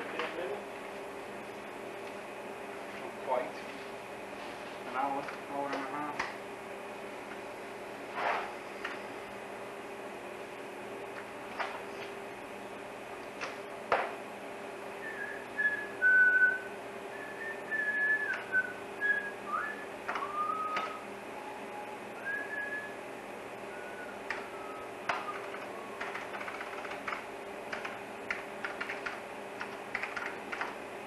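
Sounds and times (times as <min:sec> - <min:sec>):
machinery hum: 0:00.0 - 0:31.0
person whistling: 0:15.0 - 0:21.0, 0:22.2 - 0:23.0, 0:23.7 - 0:26.0
keyboard clicks: 0:25.1 - 0:30.8.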